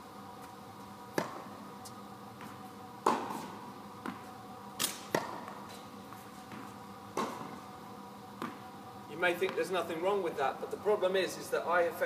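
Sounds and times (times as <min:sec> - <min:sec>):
tennis racket hitting ball: 0:01.1 - 0:01.5, 0:02.4 - 0:05.6, 0:06.5 - 0:07.6
tennis ball bounces: 0:01.1 - 0:01.6, 0:02.4 - 0:05.6, 0:06.5 - 0:07.6, 0:08.4 - 0:08.6.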